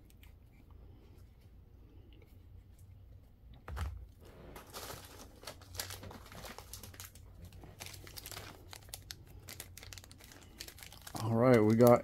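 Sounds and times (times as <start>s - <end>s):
plastic packaging crinkling: 4.2s - 12.0s.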